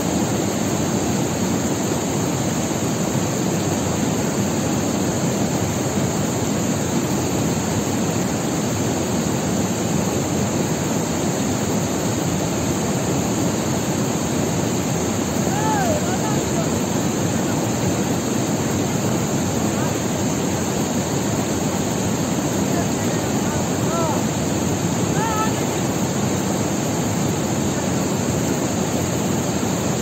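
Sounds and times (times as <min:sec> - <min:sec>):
river water rushing: 0:00.0 - 0:30.0.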